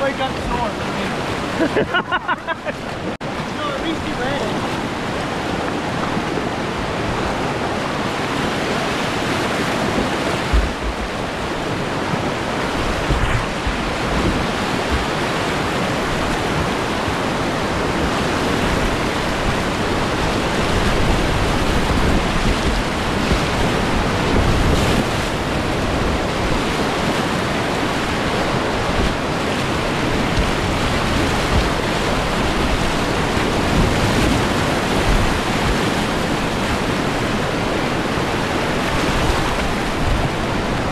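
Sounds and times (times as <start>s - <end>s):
whitewater rapids rushing: 0.0s - 40.9s
low thumps: 9.9s - 11.4s.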